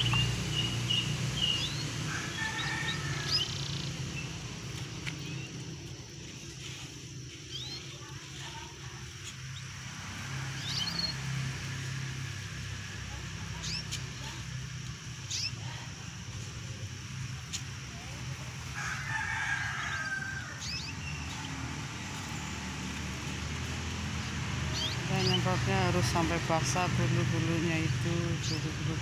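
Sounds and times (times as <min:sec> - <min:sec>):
canaries chirping: 0:00.0 - 0:06.0, 0:06.6 - 0:16.4, 0:17.3 - 0:29.0
rooster crowing: 0:01.8 - 0:04.2, 0:18.6 - 0:21.4.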